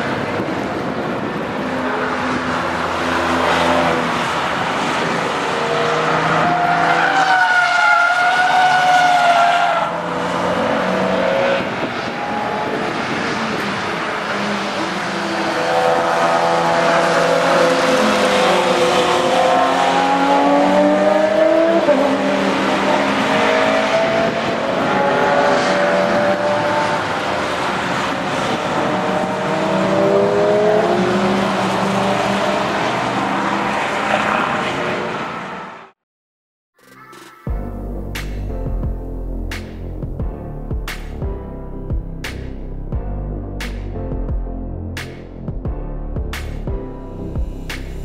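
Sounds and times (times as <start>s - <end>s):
racing car engines passing: 0.0s - 35.9s.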